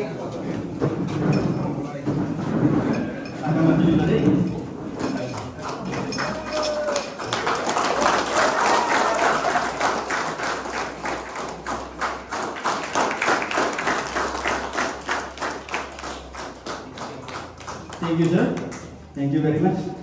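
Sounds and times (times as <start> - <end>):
people clapping: 4.9 - 19.1.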